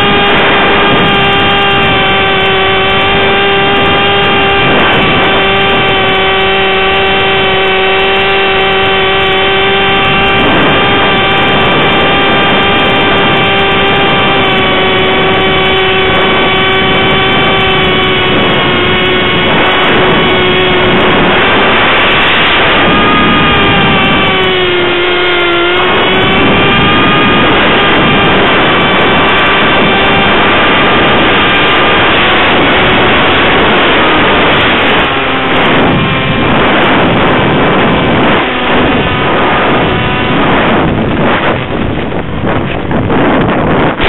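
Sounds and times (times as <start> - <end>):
electric motor and propeller whining: 0.0 - 44.0
wind rushing past: 0.0 - 44.0.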